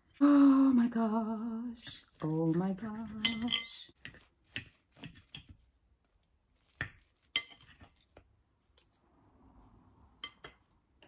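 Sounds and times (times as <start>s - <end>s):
knife and fork cutting pancakes: 2.9s - 5.7s, 6.6s - 8.2s
cutlery clinking on a plate: 3.2s - 3.8s.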